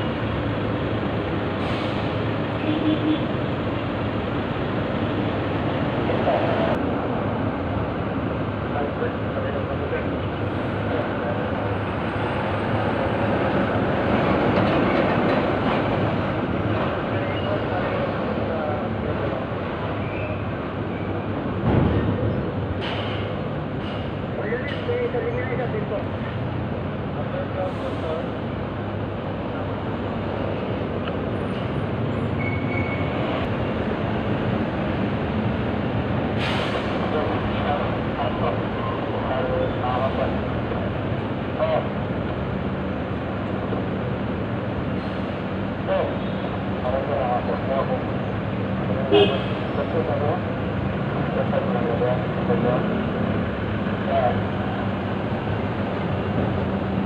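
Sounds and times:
short hiss: 0:36.4 - 0:37.0.

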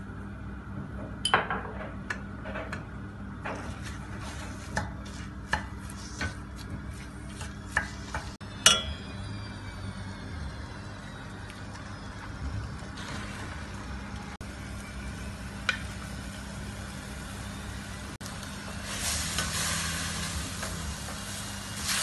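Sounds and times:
wooden spoon scraping in a pan: 0:03.5 - 0:08.4.

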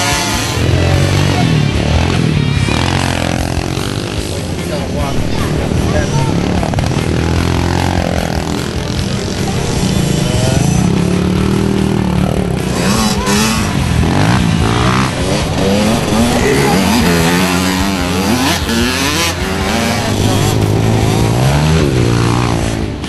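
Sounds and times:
dirt bikes revving past: 0:00.0 - 0:23.0.

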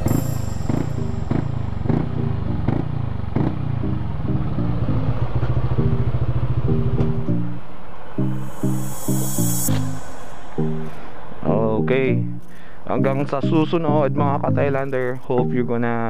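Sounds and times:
scooter engine idling: 0:00.0 - 0:07.0.

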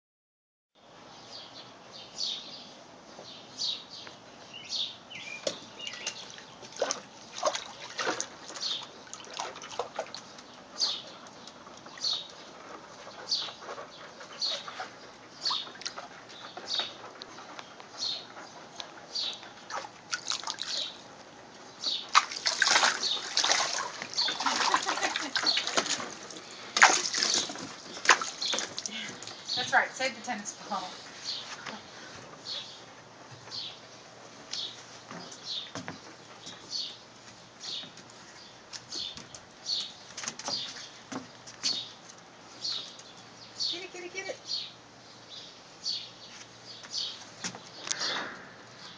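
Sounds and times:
water splashing in a pool: 0:05.9 - 0:10.3, 0:19.7 - 0:21.0, 0:22.1 - 0:29.3.

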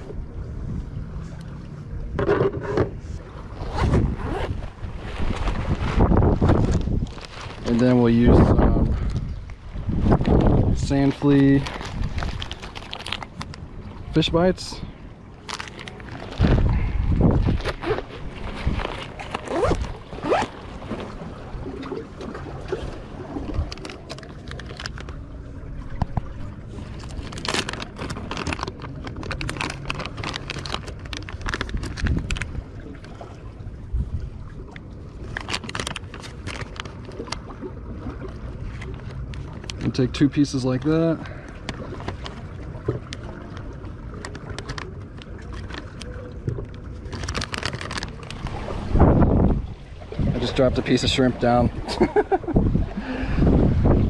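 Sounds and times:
wind rumble: 0:00.0 - 0:40.0, 0:46.4 - 0:54.0
plastic bag crinkling: 0:11.1 - 0:13.5, 0:15.4 - 0:16.6, 0:23.6 - 0:25.2, 0:27.0 - 0:32.5, 0:35.3 - 0:37.4, 0:47.1 - 0:48.6.

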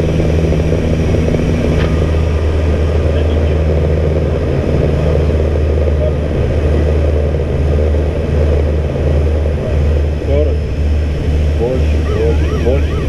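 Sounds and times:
turboprop engines droning: 0:00.0 - 0:13.0.

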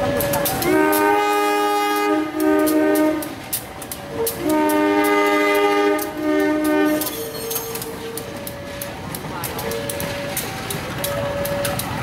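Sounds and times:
locomotive air horn blasts: 0:00.6 - 0:03.4, 0:04.1 - 0:07.3.

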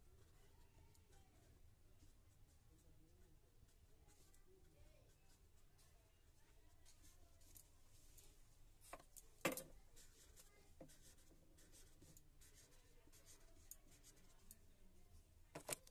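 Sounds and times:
pen scratching on paper: 0:10.0 - 0:14.4.

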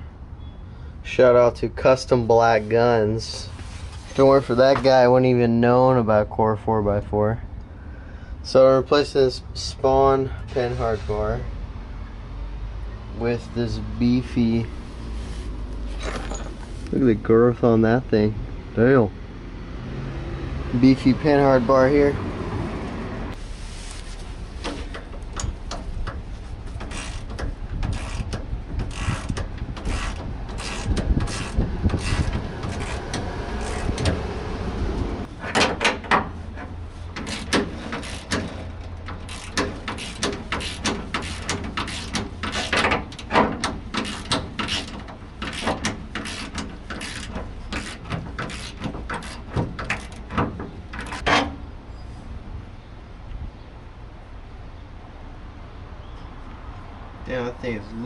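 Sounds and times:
ratchet clicking: 0:26.8 - 0:34.2, 0:37.2 - 0:50.3.

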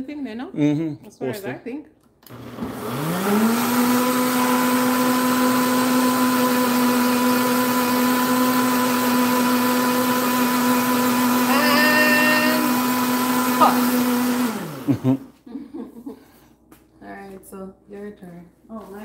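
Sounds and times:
blender motor running: 0:02.3 - 0:15.2.

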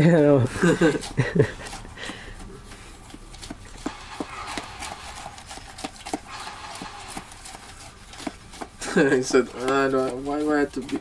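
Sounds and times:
straw scraping in plastic cup: 0:00.6 - 0:11.0.

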